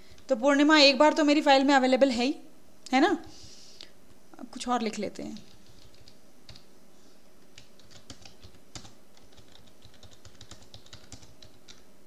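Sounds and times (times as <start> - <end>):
typing on computer keyboard: 5.4 - 6.7, 7.6 - 11.9.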